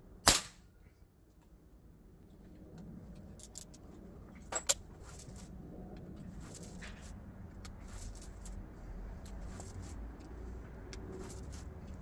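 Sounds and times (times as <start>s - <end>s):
pellet revolver shot: 0.2s - 0.6s.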